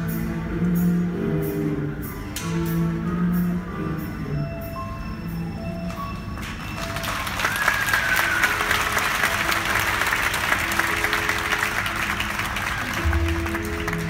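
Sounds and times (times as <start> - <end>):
background music: 0.0 - 14.0
audience applauding: 6.4 - 14.0.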